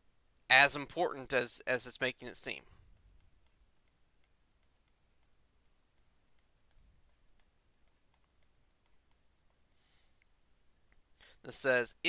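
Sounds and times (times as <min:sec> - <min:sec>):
stylus tapping tablet screen: 0:02.4 - 0:11.2.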